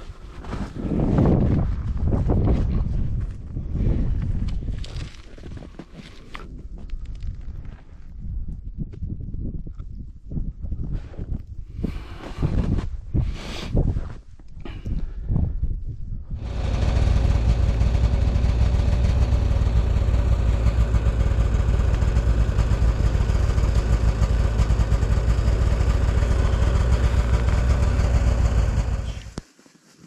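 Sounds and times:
engine running with deep hum: 0:16.4 - 0:29.4.

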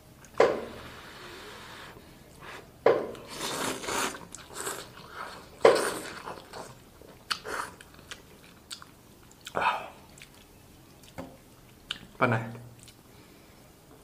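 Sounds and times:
person slurping noodles: 0:00.7 - 0:06.7
chewing: 0:03.3 - 0:12.1.

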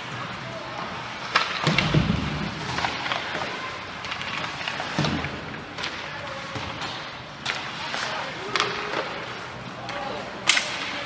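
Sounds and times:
skates scraping on ice: 0:00.0 - 0:11.0
hockey sticks and puck knocking: 0:01.1 - 0:11.0.

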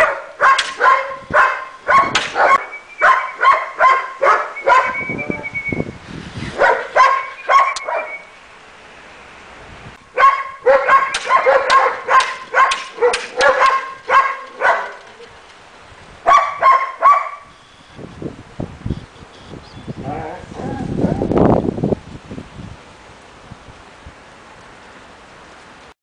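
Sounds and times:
puppies barking in high yips: 0:00.0 - 0:05.2, 0:06.6 - 0:08.3, 0:10.2 - 0:15.3, 0:16.3 - 0:17.5.

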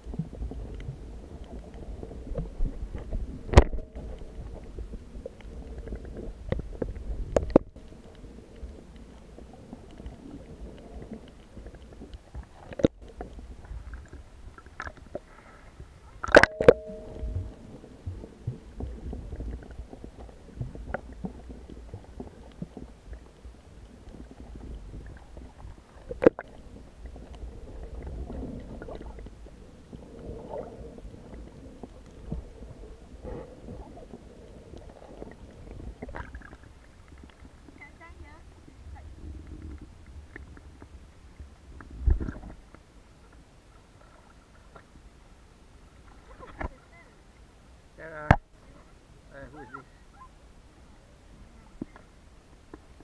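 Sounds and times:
muffled underwater rumble: 0:00.0 - 0:53.0
clicks and sharp knocks: 0:16.2 - 0:17.6.

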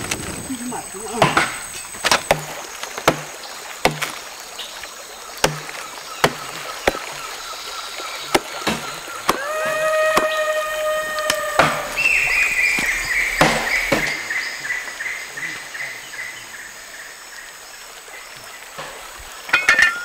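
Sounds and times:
axe chopping wood: 0:01.1 - 0:04.5, 0:05.4 - 0:07.4, 0:08.2 - 0:10.5, 0:11.3 - 0:12.0, 0:12.8 - 0:14.2.

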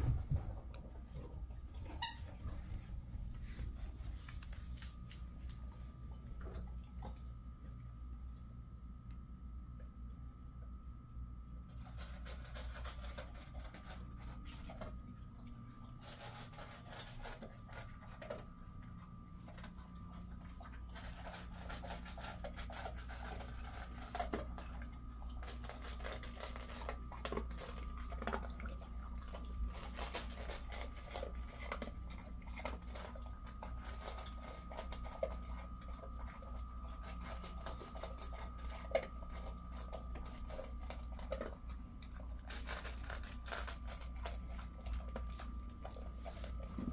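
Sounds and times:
dog crunching dry kibble: 0:11.6 - 0:46.9
kibble clicking on steel bowl: 0:19.5 - 0:46.6.

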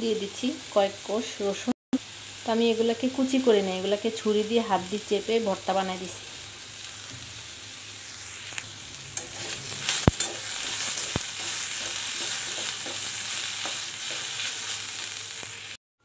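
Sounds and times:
vegetables sizzling in hot oil: 0:00.0 - 0:15.8
metal spatula scraping a pan: 0:08.1 - 0:15.8.

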